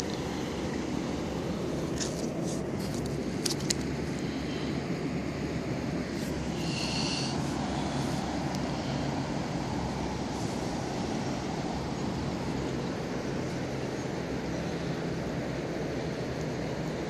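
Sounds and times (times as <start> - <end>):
river rushing over stones: 0.0 - 17.0.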